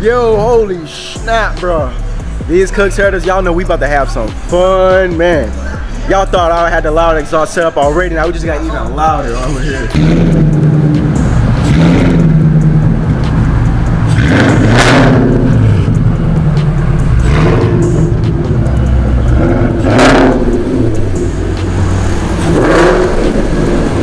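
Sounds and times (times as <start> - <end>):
car engine deep exhaust note: 9.2 - 24.0.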